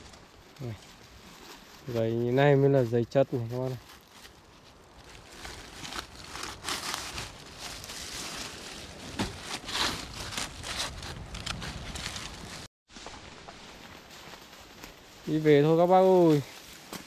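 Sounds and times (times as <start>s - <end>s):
undergrowth rustling and crackling: 0.0s - 17.0s.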